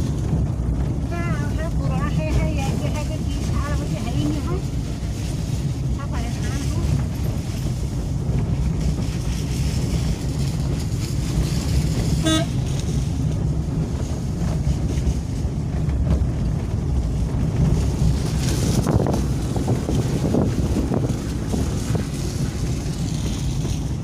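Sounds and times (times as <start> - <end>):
car engine and tyre rumble: 0.0 - 24.0
car horn beep: 12.2 - 12.6.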